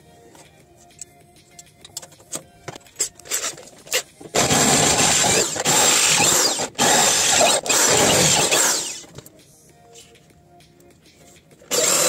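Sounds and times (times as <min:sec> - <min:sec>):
electric drill boring into metal: 0:03.3 - 0:09.1, 0:11.7 - 0:12.0.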